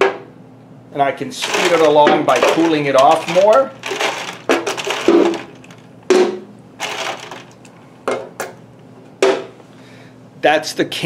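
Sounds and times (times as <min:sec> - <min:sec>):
metal can popping and crinkling: 0:01.4 - 0:07.8.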